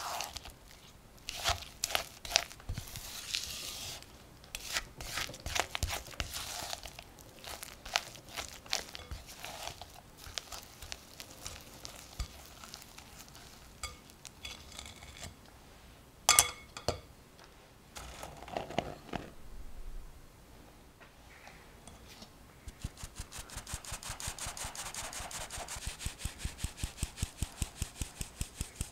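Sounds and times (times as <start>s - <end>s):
spatula scraping glass bowl: 1.3s - 6.9s, 7.5s - 10.7s, 11.4s - 15.3s.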